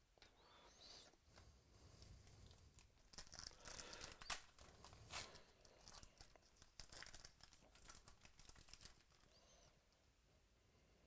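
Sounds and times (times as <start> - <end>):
cards rustling: 2.2 - 9.6
foil pack tearing and crinkling: 3.0 - 9.3.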